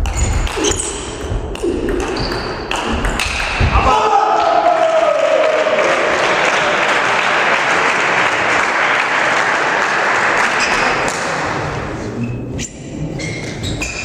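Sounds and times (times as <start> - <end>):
audience applauding: 4.5 - 11.6.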